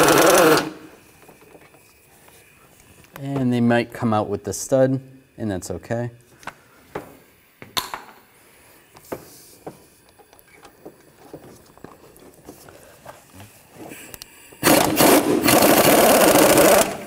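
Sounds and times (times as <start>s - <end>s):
impact gun burst: 14.6s - 17.0s.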